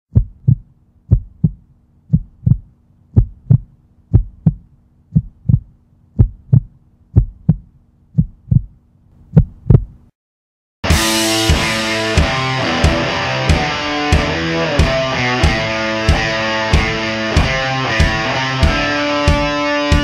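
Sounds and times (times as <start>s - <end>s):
faint steady hum: 0.1s - 10.1s
heartbeat thumps: 0.1s - 10.1s, 12.2s - 20.0s.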